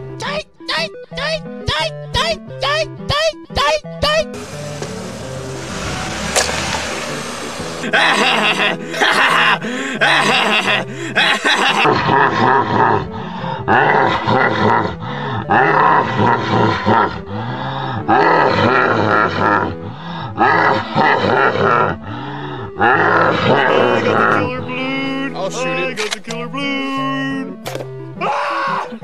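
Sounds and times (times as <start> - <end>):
noisy rush: 4.4 - 9.1
man laughing loudly: 7.8 - 17.2, 18.1 - 19.8, 20.4 - 22.0, 22.8 - 27.5.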